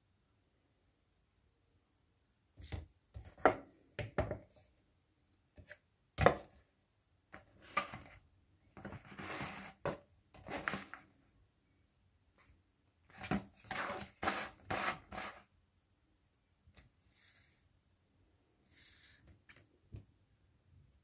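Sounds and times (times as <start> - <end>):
plastic tub scraping: 8.8 - 11.0, 13.1 - 15.5.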